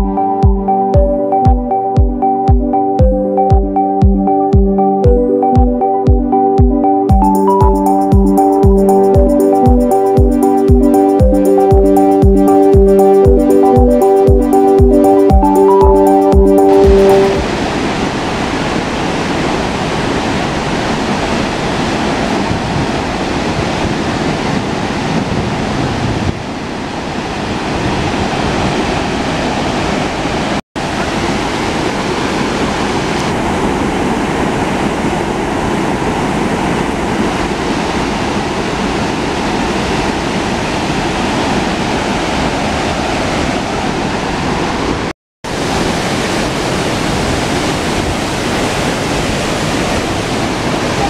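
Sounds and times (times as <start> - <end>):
waterfall rushing: 45.5 - 51.0.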